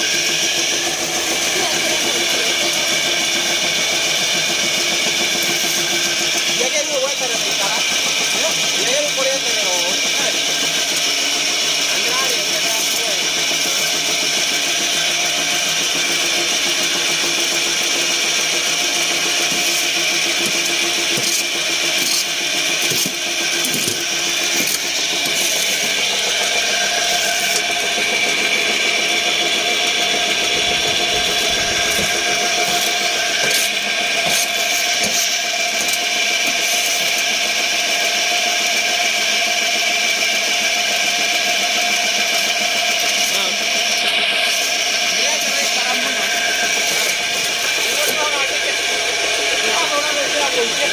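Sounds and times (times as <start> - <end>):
machine droning: 0.0 - 50.9.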